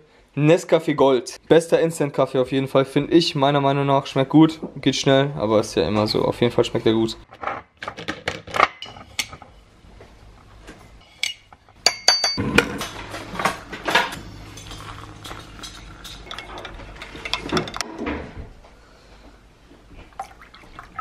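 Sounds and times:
crockery and spoon clinking: 11.2 - 12.4, 14.5 - 17.8
water pouring into mugs: 14.5 - 16.7, 20.1 - 21.0.

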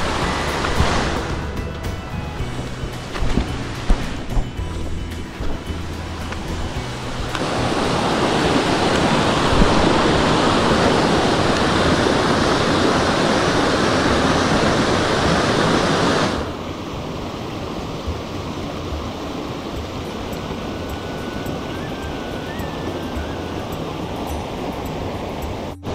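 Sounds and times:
stream rushing over rapids: 0.0 - 25.9.

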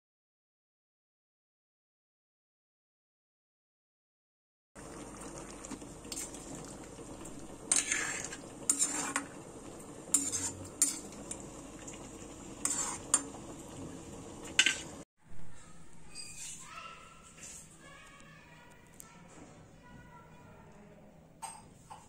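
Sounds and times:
curry bubbling: 4.8 - 15.1.

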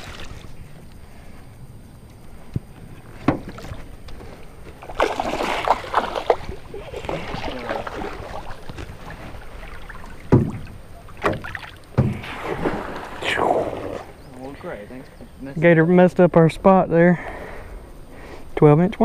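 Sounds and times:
water splashing: 0.0 - 0.6, 3.4 - 14.7.

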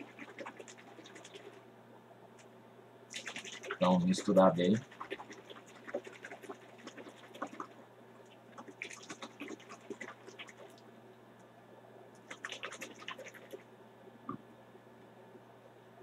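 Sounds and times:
liquid rattling in plastic bottle: 0.0 - 1.6, 3.1 - 7.7, 8.6 - 10.8, 12.2 - 13.6.

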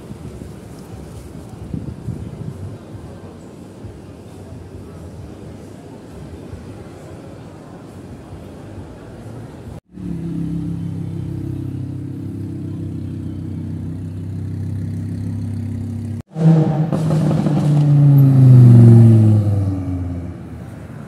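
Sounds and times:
sports car engine idling: 9.9 - 16.2
sports car accelerating past: 10.0 - 21.0.

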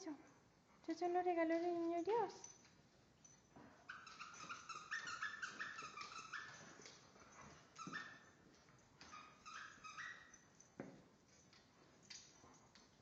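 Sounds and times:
squeaky dog toy squeaking: 3.9 - 6.8, 7.8 - 8.4, 9.0 - 10.4.

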